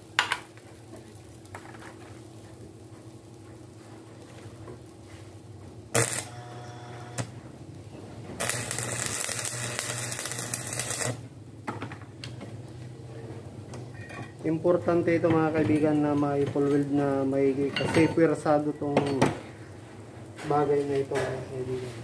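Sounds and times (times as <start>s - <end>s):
arc welding crackling sizzle: 0.0s - 22.0s.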